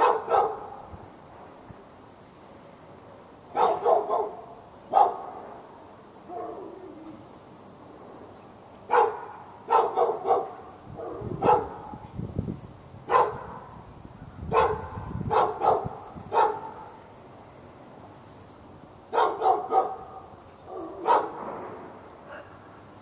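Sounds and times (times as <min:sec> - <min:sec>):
dog barking: 0:00.0 - 0:00.9, 0:03.5 - 0:05.5, 0:06.3 - 0:06.8, 0:08.9 - 0:12.0, 0:13.1 - 0:13.7, 0:14.5 - 0:17.0, 0:19.1 - 0:21.4.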